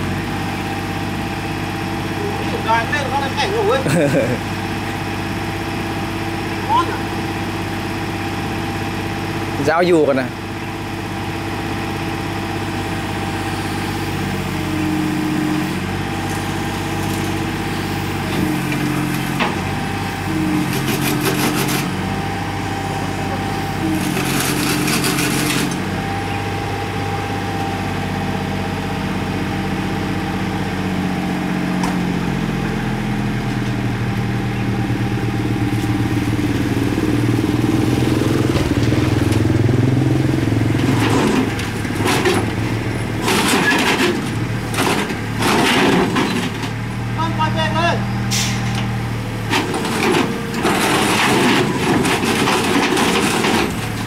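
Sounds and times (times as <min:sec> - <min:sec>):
excavator diesel engine under load: 0:00.0 - 0:54.0.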